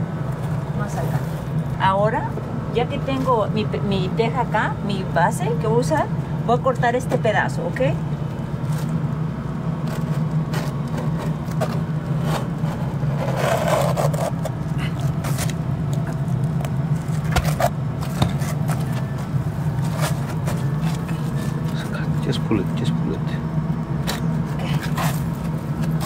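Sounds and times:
steady low hum: 0.0 - 26.0
knife scraping roofing sheet: 9.9 - 15.6, 24.6 - 26.0.

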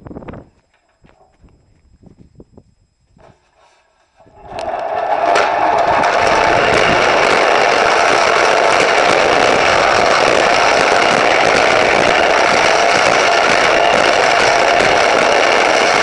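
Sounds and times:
small engine running: 4.3 - 16.0.

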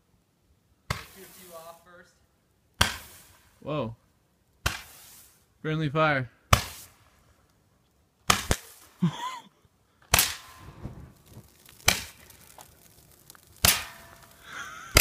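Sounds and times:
roman candle firing pops: 8.3 - 8.8, 10.1 - 15.0.

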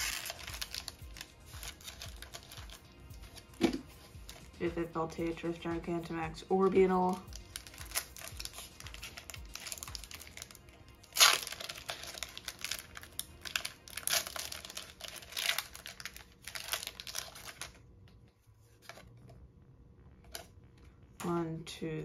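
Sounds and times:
foil wrapper tearing: 0.0 - 3.6, 7.0 - 17.8
foil wrapper crinkling: 0.0 - 4.5, 7.0 - 17.8.

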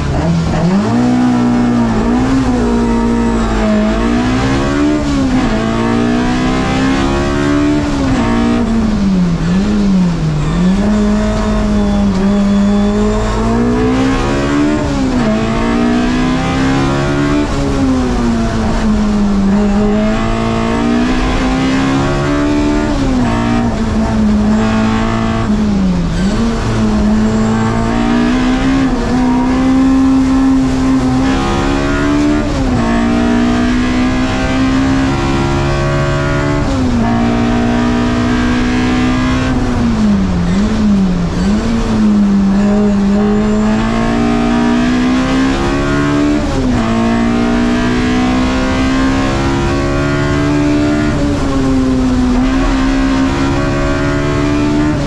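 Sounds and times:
race car engine at high revs: 0.0 - 55.0.

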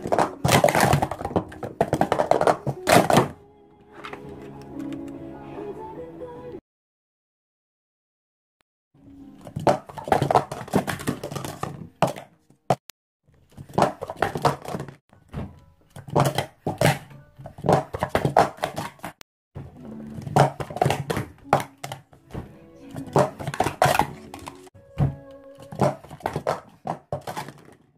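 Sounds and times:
plastic cups clattering: 0.0 - 3.4, 9.4 - 12.4, 13.5 - 15.0, 15.9 - 24.7, 25.6 - 27.9.

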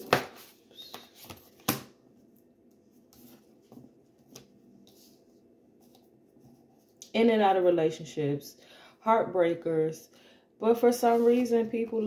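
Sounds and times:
cards being shuffled: 0.0 - 1.9.

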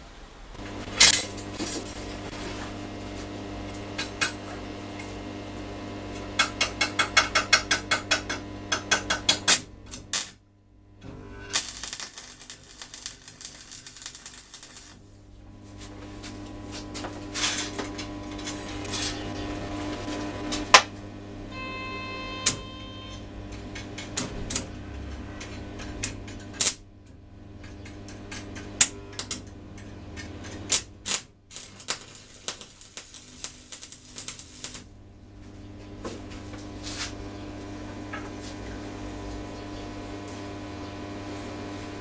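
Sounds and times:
crackling welding arc: 0.5 - 21.4, 22.4 - 42.0
welder humming: 0.5 - 42.0.

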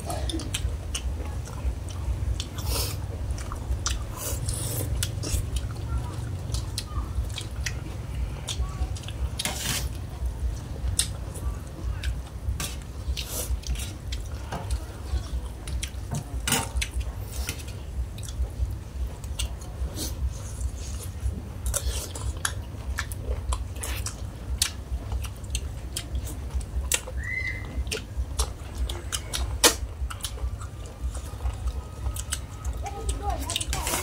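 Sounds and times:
people chewing: 0.0 - 34.0
steady low rumble: 0.0 - 34.0
spoons scraping metal tray: 9.4 - 9.9.

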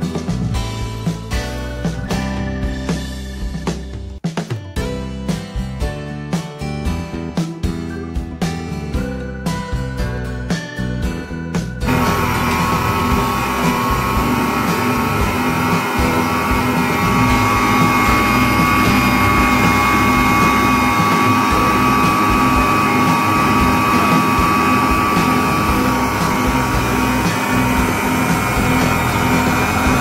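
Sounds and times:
background music: 0.0 - 30.0
stand mixer motor whine: 11.9 - 30.0.

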